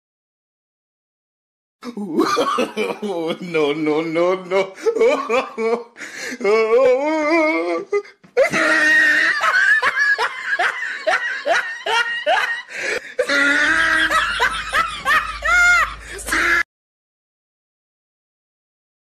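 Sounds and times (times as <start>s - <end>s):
person laughing: 1.8s - 16.6s.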